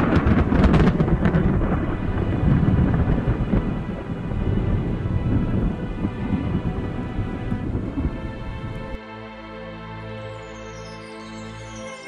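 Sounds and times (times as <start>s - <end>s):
low thunder rumble: 0.0s - 9.0s
rain: 0.0s - 9.0s
thunderclap crackling: 0.0s - 9.0s.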